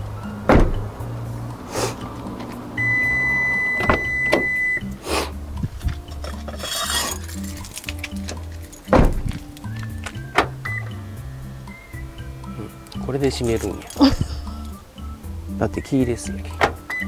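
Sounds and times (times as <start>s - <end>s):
door swinging open: 0.4s - 1.0s, 2.8s - 4.8s, 8.1s - 11.0s, 16.5s - 17.0s
steady electronic beep: 2.8s - 4.9s.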